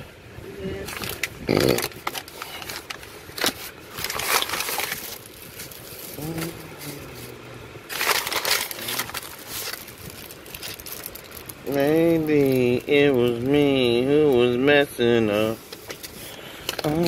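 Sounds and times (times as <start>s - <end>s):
plastic bag rustling: 0.8s - 13.5s
cellophane packet crackling: 0.9s - 14.5s.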